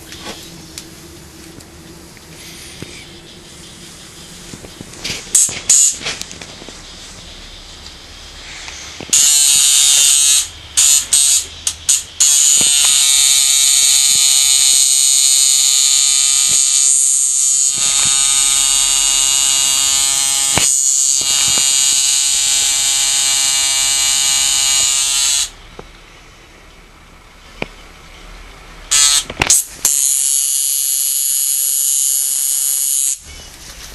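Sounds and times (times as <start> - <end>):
tattoo machine buzzing: 5.3 - 6.1, 8.9 - 25.6, 28.9 - 33.3.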